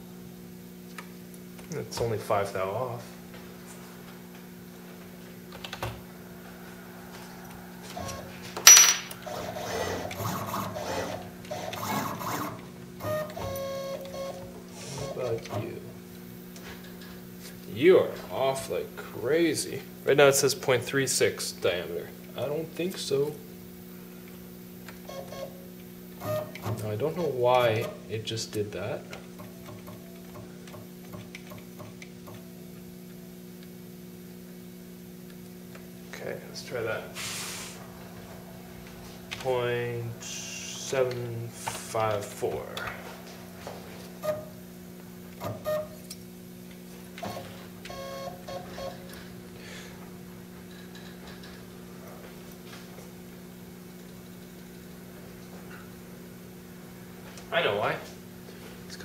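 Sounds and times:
electrical hum: 0.0 - 59.0
sharp metallic clink: 8.6 - 9.1.

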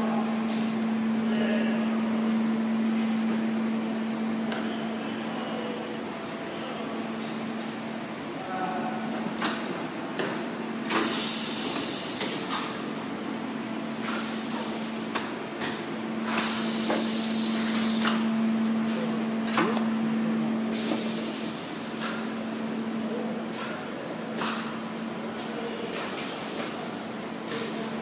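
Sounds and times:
compressed air hissing: 10.9 - 12.7, 16.4 - 18.2, 20.7 - 22.0
low machine hum: 12.0 - 25.4.

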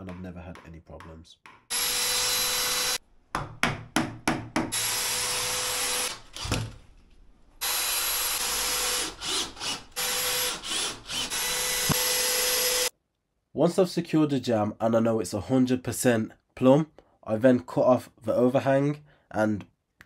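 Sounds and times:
cordless drill driving screws: 1.7 - 3.0, 4.8 - 6.6, 7.6 - 12.9.

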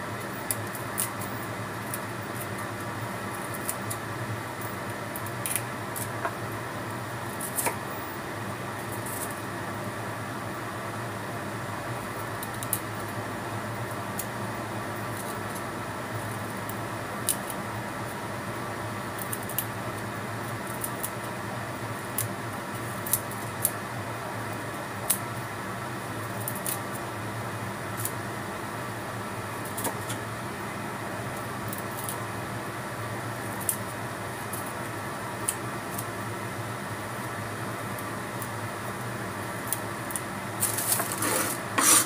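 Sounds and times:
steady background hum: 0.0 - 42.0
knife cutting broccoli stems: 5.2 - 6.4, 39.6 - 42.0.

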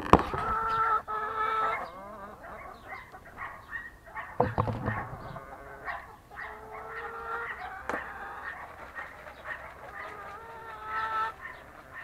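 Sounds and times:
hens clucking: 0.1 - 12.0
single knock: 4.4 - 5.5.

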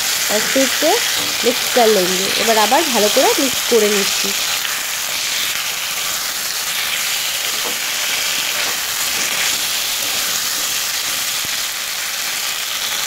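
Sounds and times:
food frying in hot oil: 0.0 - 13.0
metal spatula stirring: 7.4 - 11.3.

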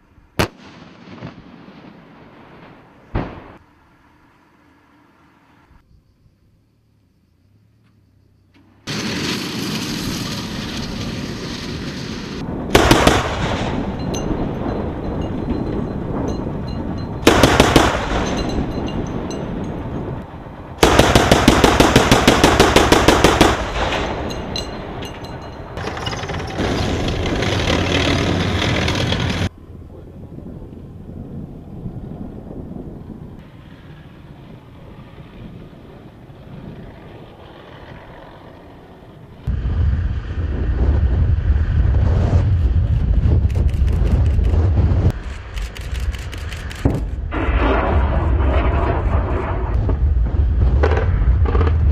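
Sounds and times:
automatic gunfire bursts: 12.8 - 13.5, 17.3 - 18.5, 20.8 - 23.9
heavy low rumble: 39.3 - 51.9.

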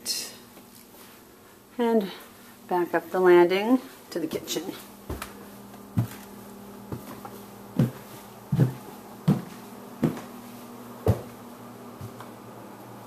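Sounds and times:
footsteps on carpeted stairs: 4.3 - 12.3.

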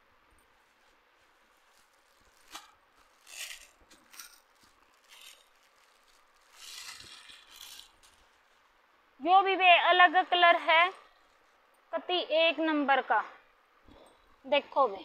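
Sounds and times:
plastic garment bag crinkling: 0.4 - 8.8.

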